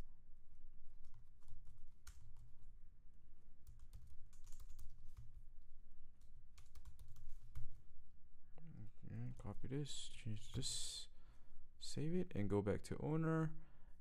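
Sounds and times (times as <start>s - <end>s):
computer keyboard typing: 1.0s - 2.7s, 3.6s - 5.4s, 6.2s - 7.8s.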